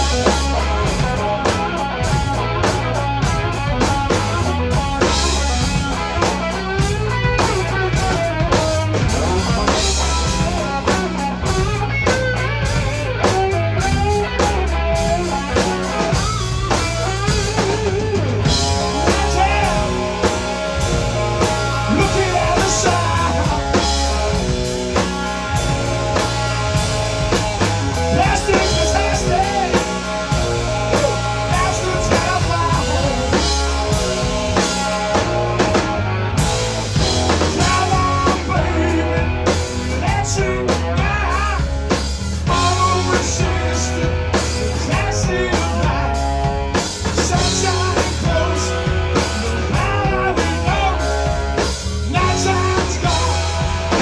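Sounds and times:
live rock band playing: 0.0 - 54.0
man singing: 18.4 - 24.4, 27.4 - 35.3, 37.1 - 54.0.

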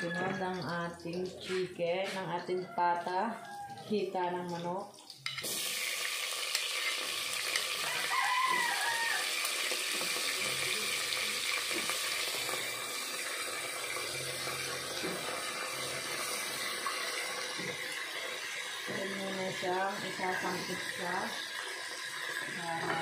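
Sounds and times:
chicken sizzling in hot oil: 4.6 - 23.0.

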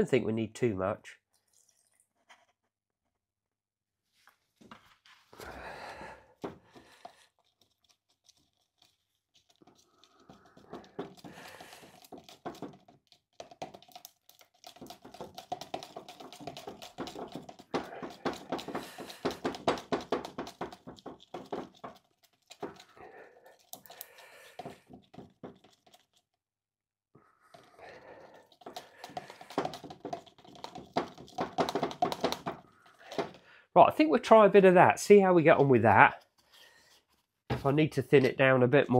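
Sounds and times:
paint stirring scraping tin: 6.7 - 26.3, 27.4 - 33.4.

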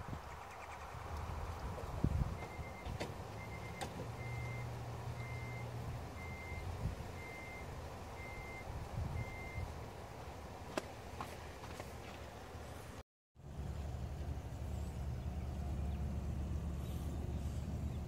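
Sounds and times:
low steady rumble: 12.4 - 18.0.

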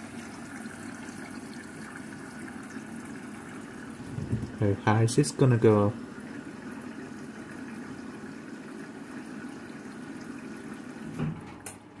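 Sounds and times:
water rushing into washing machine: 0.0 - 12.0.

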